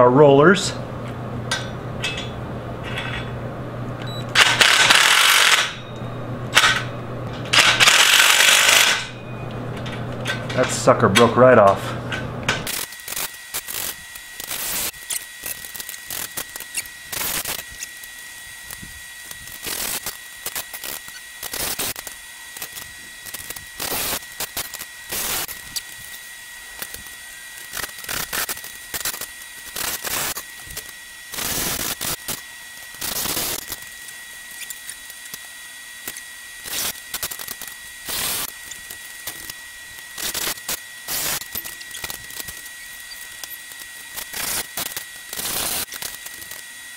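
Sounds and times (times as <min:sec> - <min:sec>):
cordless drill bursts: 0:04.4 - 0:05.7, 0:07.6 - 0:09.0.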